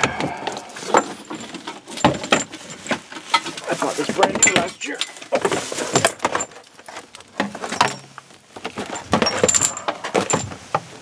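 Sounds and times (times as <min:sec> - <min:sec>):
rubber hose rustling and knocking: 0:00.0 - 0:11.0
metallic clinks of hose fittings: 0:00.5 - 0:05.3, 0:08.9 - 0:10.6.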